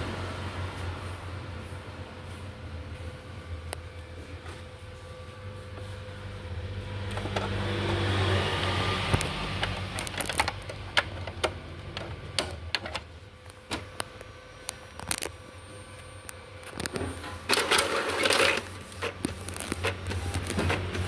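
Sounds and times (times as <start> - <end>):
printer motor whirring: 2.1 - 21.0
printer mechanism clicking: 9.1 - 15.3, 16.6 - 21.0.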